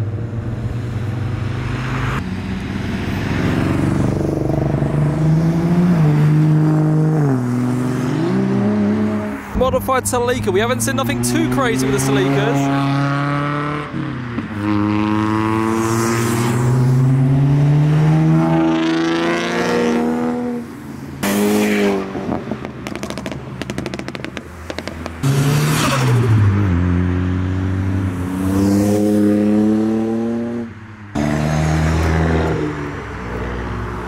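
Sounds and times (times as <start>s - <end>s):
car engines revving: 0.0s - 34.0s
car engine passing by: 0.5s - 9.6s, 10.4s - 34.0s
sharp exhaust pops: 22.3s - 25.4s.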